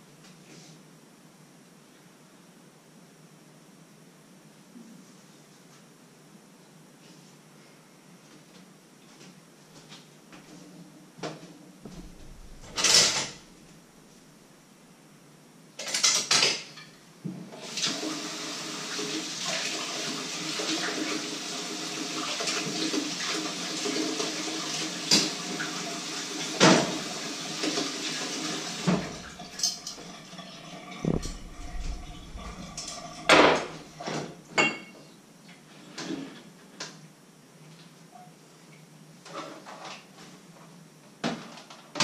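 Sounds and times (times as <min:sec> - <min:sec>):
pots and dishes clinking: 0:29.0 - 0:34.0
crockery clattering: 0:29.0 - 0:34.9
tap running into steel sink: 0:31.0 - 0:33.8.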